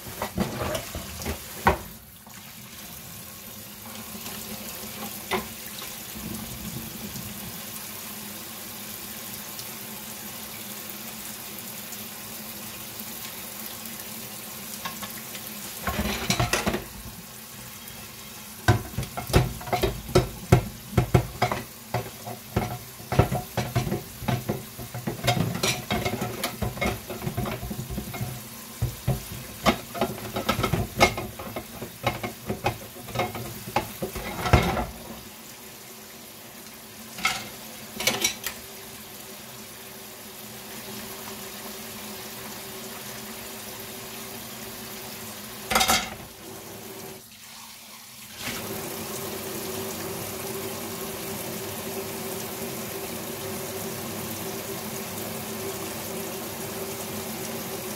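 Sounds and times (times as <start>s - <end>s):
food sizzling: 0.0s - 57.9s
utensil knocking against pan: 18.7s - 35.0s.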